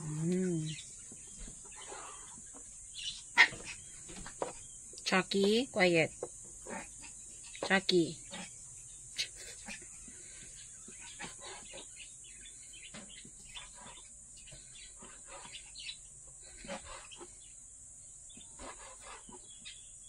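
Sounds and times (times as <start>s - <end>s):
bird chirping: 0.0s - 20.0s.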